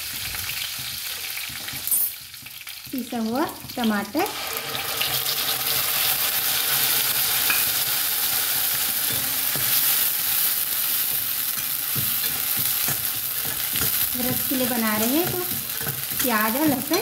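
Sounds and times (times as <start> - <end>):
food sizzling in hot oil: 0.0 - 17.0
metal spatula stirring and knocking pan: 8.7 - 10.2, 11.0 - 17.0.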